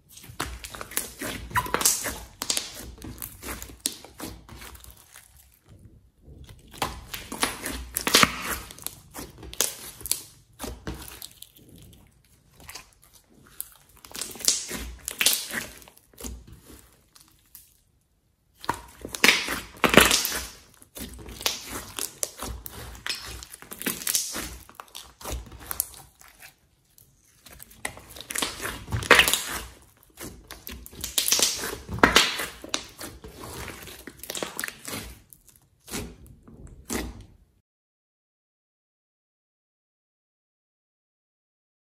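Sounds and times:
slime squelching and popping: 0.0s - 17.9s, 18.5s - 37.4s.

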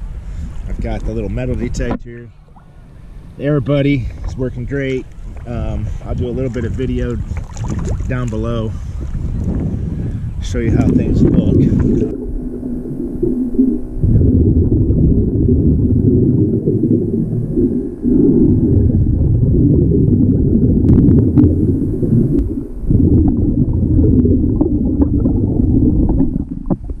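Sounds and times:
diver breathing underwater: 8.7s - 10.4s.

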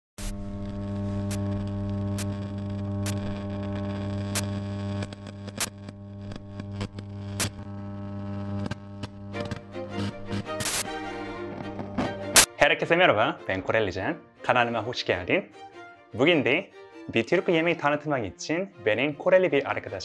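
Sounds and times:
static hiss: 0.2s - 10.9s, 11.8s - 12.5s
electrical mains hum: 0.3s - 10.7s.

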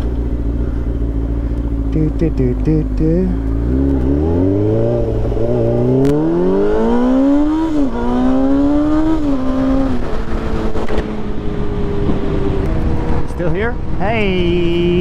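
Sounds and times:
motorcycle engine accelerating: 0.0s - 15.0s
wind rushing over microphone: 3.6s - 15.0s.

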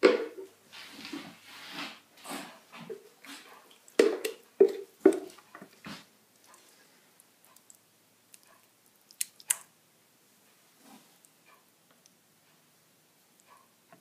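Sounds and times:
soft scraping: 0.7s - 3.6s, 10.7s - 11.3s.

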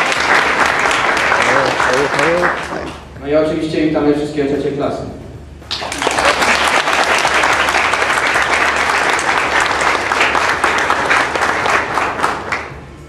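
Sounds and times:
audience applauding: 0.0s - 3.0s, 5.7s - 12.8s.

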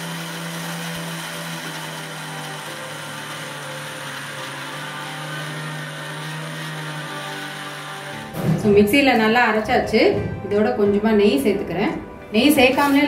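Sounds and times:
mixer grinder grinding: 0.0s - 9.6s.

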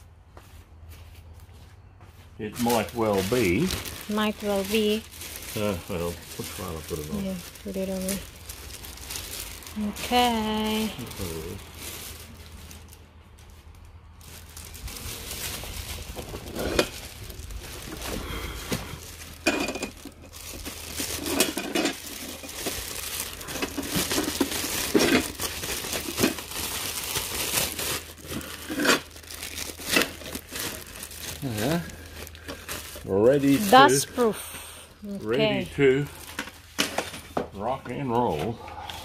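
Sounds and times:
plastic bag crinkling: 2.5s - 34.3s, 35.2s - 37.3s
sharp crackles and knocks: 11.8s - 31.4s.

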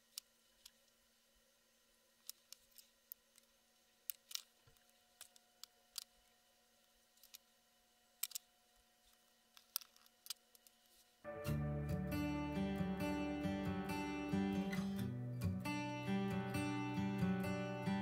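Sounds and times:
faint small clicks and taps: 2.2s - 6.2s, 8.2s - 11.1s.

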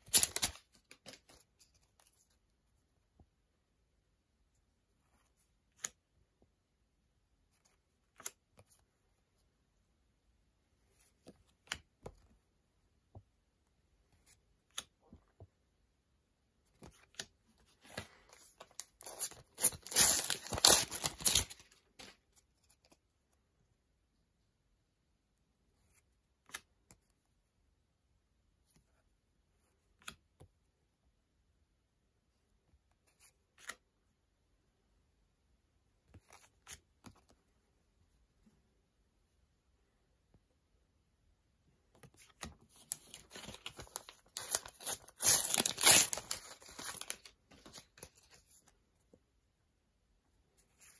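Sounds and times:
paper stickers rustling: 0.0s - 2.4s, 16.7s - 23.0s, 42.0s - 48.7s.

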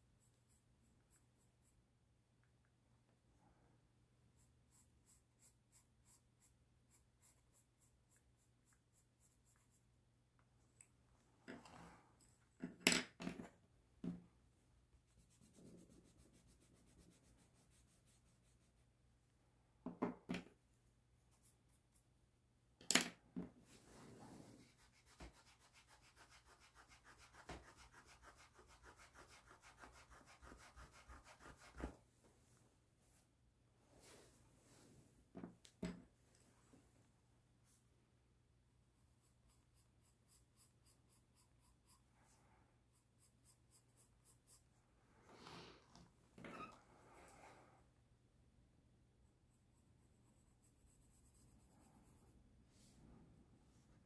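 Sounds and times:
knocks and handling sounds: 12.6s - 14.3s.

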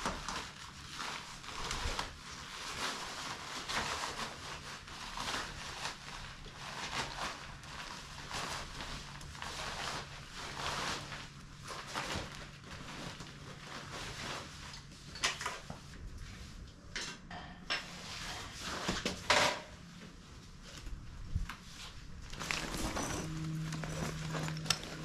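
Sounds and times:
low steady hum: 0.0s - 25.0s
knocks and clatter of handling: 22.3s - 25.0s.

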